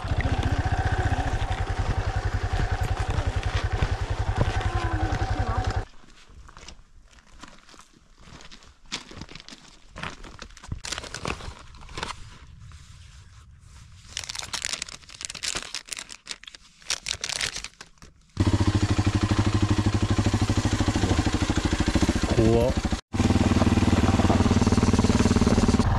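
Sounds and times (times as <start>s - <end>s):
motorcycle engine running: 0.0s - 5.9s, 18.4s - 25.9s
plastic snack bag crinkling: 10.2s - 12.0s, 14.1s - 18.2s.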